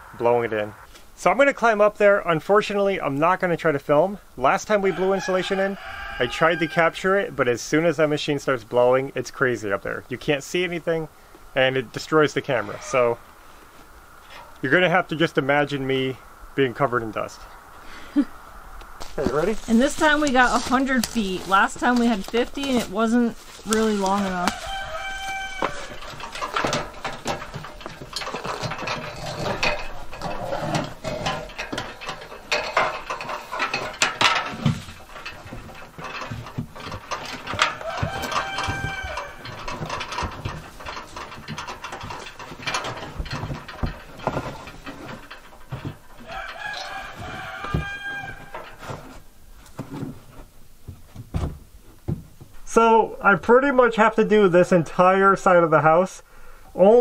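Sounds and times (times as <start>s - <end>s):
rooster crowing: 4.8s - 6.9s, 24.3s - 26.2s, 37.6s - 39.6s, 46.2s - 48.6s
knocks and rustling: 18.8s - 52.8s.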